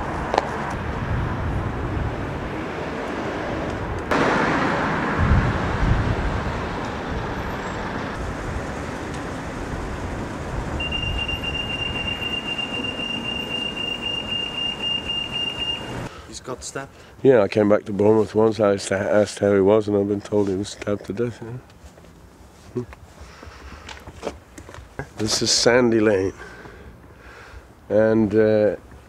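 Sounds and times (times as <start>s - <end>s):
road traffic noise: 0.0s - 17.2s, 20.3s - 27.9s
high-pitched beeping tone: 10.8s - 16.1s.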